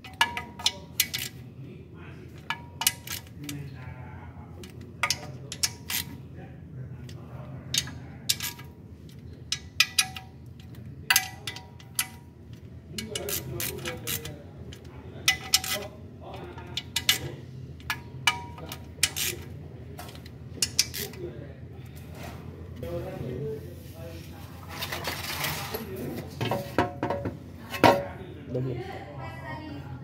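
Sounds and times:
ratchet clicking on metal bolts: 0.0 - 1.4, 2.4 - 3.6, 4.6 - 6.2, 7.7 - 15.9, 16.5 - 21.2.

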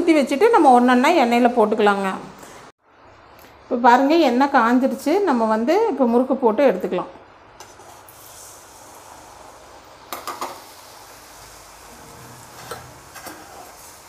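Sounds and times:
dough sizzling in hot oil: 7.5 - 14.0.

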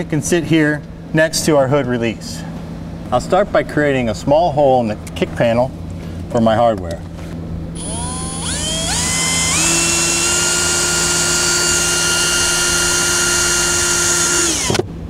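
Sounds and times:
power drill motor whine: 7.8 - 14.9.

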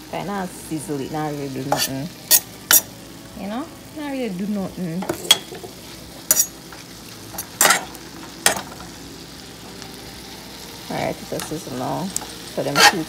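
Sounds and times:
food sizzling in skillet: 0.0 - 13.0
knife scraping pan: 1.7 - 2.9, 12.7 - 13.0.

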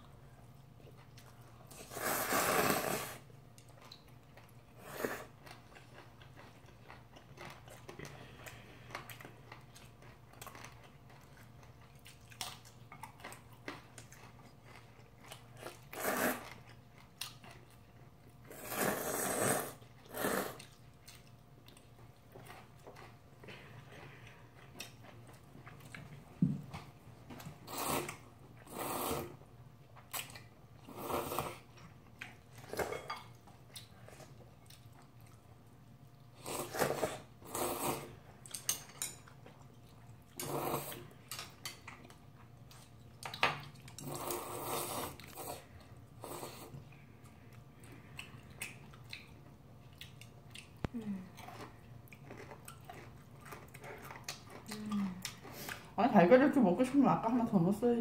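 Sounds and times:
chewing: 0.0 - 29.0, 29.8 - 56.0
slurping noodles: 1.7 - 3.3, 15.6 - 16.6, 18.5 - 20.8, 27.6 - 29.4, 30.9 - 31.7, 36.4 - 38.2, 40.4 - 41.1, 44.0 - 46.8.

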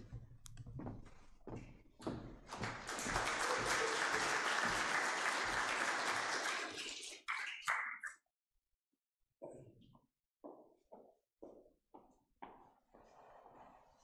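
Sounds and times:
congregation applauding: 2.5 - 7.8.

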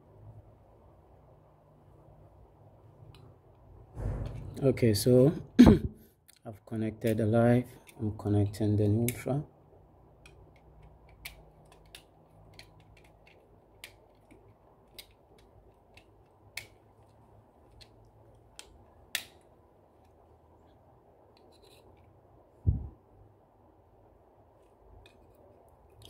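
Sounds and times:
dull thump: 4.0 - 4.5
screwdriver clicks and scrapes: 10.2 - 19.4, 21.4 - 22.1.

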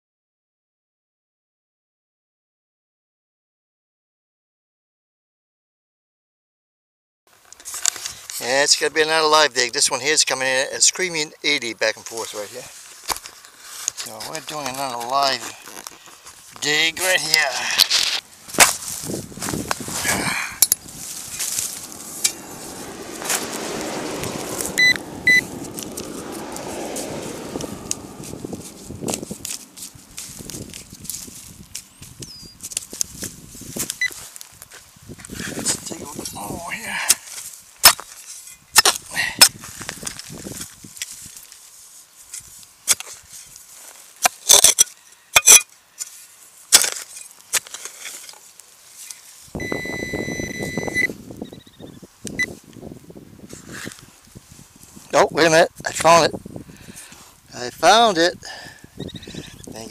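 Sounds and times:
crunches on dry stubble: 12.1 - 44.3
shovel stabbing and scraping soil: 17.0 - 23.8, 24.4 - 31.9, 37.0 - 41.4, 42.3 - 49.3
metal detector beeps: 24.8 - 25.4, 49.6 - 52.6, 59.0 - 59.6.

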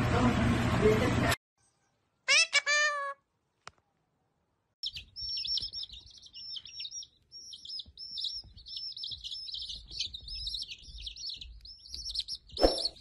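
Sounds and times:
chicks peeping: 4.8 - 13.0.

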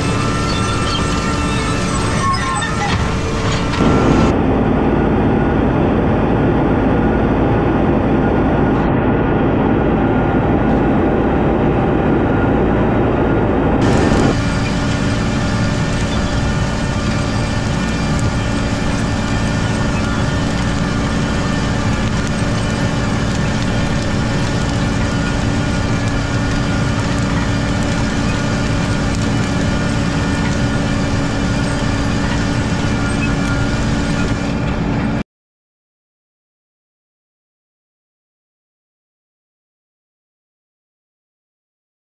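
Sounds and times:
constant hum: 0.0 - 35.2
planter rumbling and rattling: 0.0 - 35.2.

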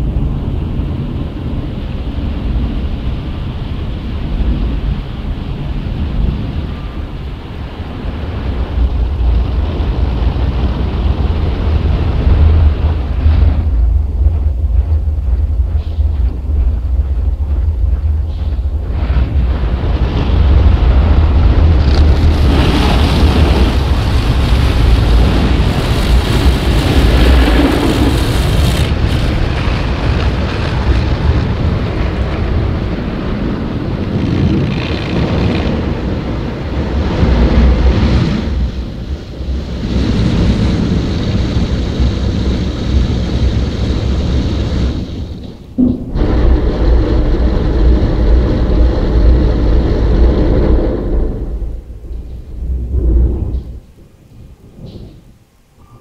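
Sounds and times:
car wash brushes and water rushing: 19.2 - 45.4.

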